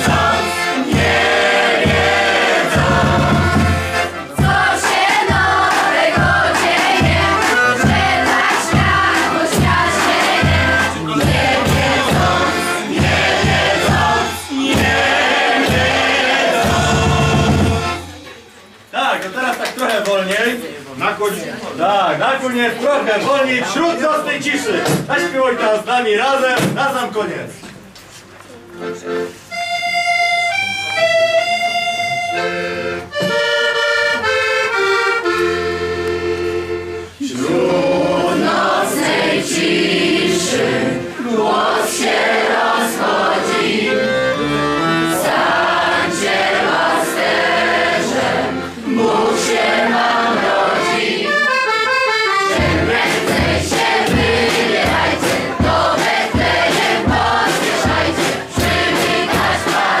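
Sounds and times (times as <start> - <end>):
steady beat: 0.0 - 18.6, 37.5 - 60.0
voices singing along: 0.0 - 18.6, 36.7 - 60.0
accordion playing slow tune: 0.0 - 18.8, 28.5 - 55.2.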